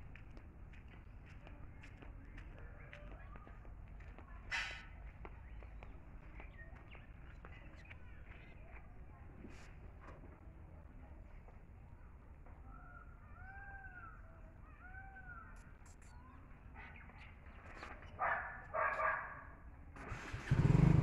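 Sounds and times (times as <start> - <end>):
motorcycle engine starting: 20.0 - 21.0.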